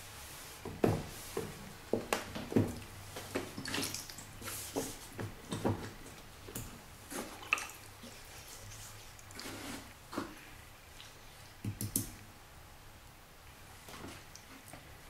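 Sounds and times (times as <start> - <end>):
cloth wet rubbing: 2.8 - 6.3, 7.0 - 11.6.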